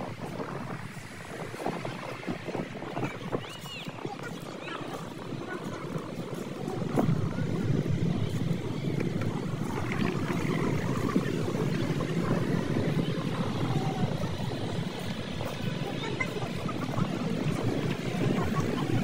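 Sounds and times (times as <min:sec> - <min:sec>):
wind buffeting microphone: 0:00.0 - 0:19.0.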